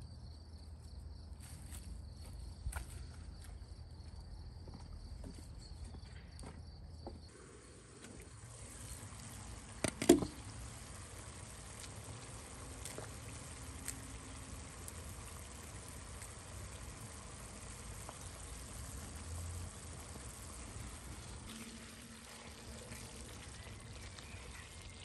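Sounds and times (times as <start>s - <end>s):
faint steady hiss: 7.3s - 25.0s.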